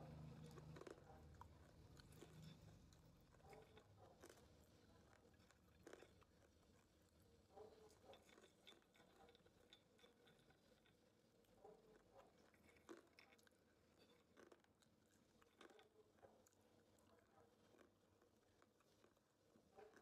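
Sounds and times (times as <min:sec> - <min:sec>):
crunching and chewing: 0:00.0 - 0:20.0.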